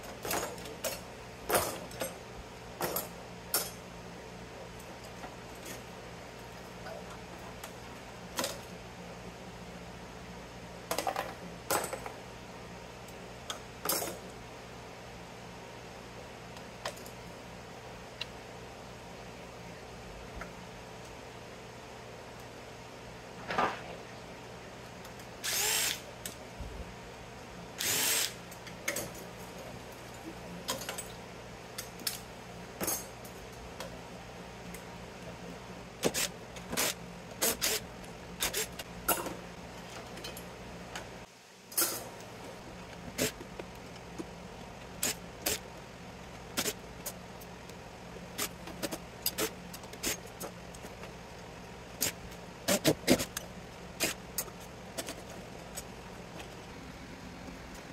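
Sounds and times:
cordless drill running: 0:25.4 - 0:26.0, 0:27.8 - 0:28.4.

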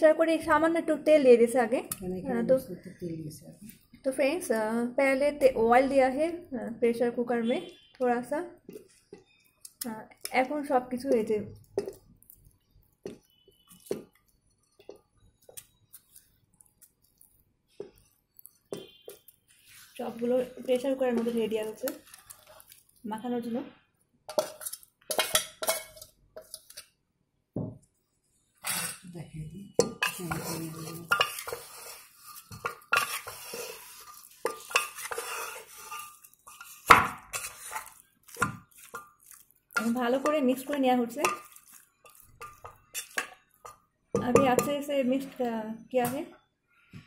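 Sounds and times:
spoon taps: 0:10.2 - 0:12.1, 0:29.8 - 0:31.6, 0:39.8 - 0:44.9
metal spoon scraping steel bowl: 0:17.9 - 0:22.8, 0:24.3 - 0:26.9, 0:28.6 - 0:29.1, 0:29.8 - 0:45.4.

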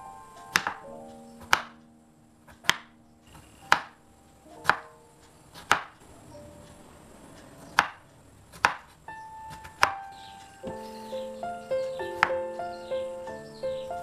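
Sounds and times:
knife chopping on wooden board: 0:00.6 - 0:00.8, 0:01.4 - 0:01.7, 0:04.6 - 0:04.9, 0:05.5 - 0:06.0, 0:07.8 - 0:10.0.

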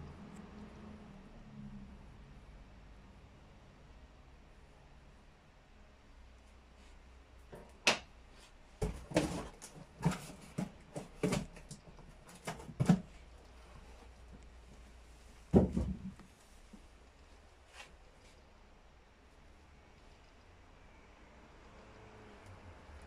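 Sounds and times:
box thump: 0:08.8 - 0:11.7, 0:15.5 - 0:16.2
cardboard box knocks and taps: 0:08.8 - 0:13.2, 0:15.5 - 0:16.3.

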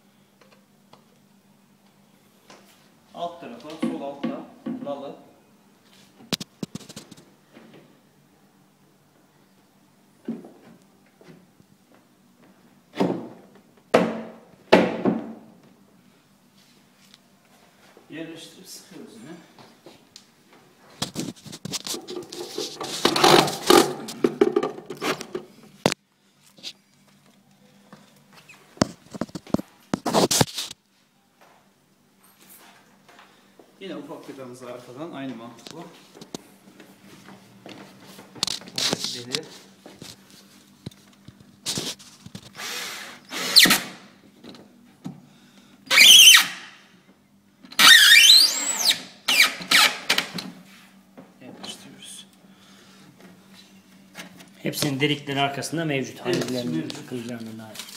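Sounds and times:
rustling and scraping: 0:05.8 - 0:07.3, 0:20.8 - 0:27.4, 0:28.0 - 0:31.1, 0:35.5 - 0:42.6, 0:56.3 - 0:57.9
cordless drill whining: 0:42.6 - 0:43.8, 0:47.8 - 0:49.9.

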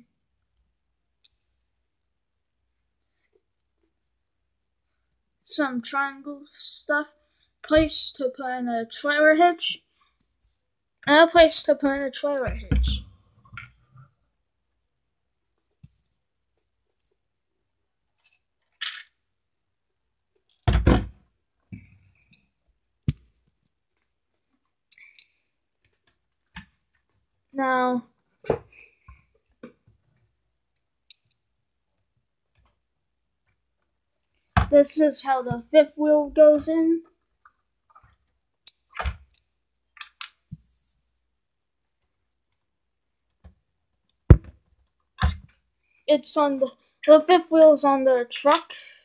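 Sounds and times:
plastic bricks clicking: 0:01.2 - 0:01.7, 0:24.9 - 0:25.4, 0:31.1 - 0:31.4.

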